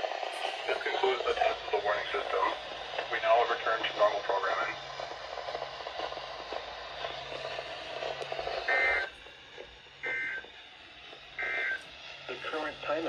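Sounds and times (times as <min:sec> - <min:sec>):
hissy radio broadcast: 0:00.0 - 0:13.0
two-tone data bursts: 0:08.6 - 0:09.1, 0:10.0 - 0:10.5, 0:11.4 - 0:11.9.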